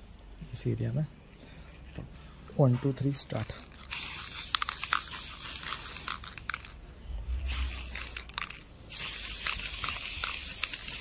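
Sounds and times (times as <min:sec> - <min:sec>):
spray paint can hissing: 0:03.6 - 0:11.0.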